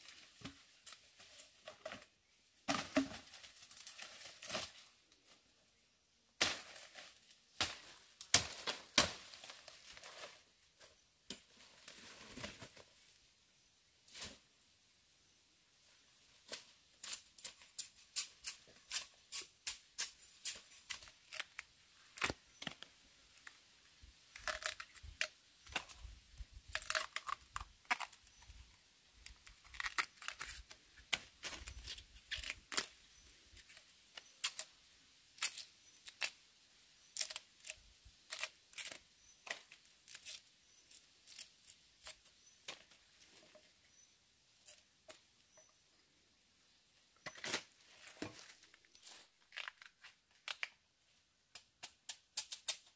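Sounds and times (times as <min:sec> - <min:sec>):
sharp snaps and clicks: 0:51.5 - 0:52.9.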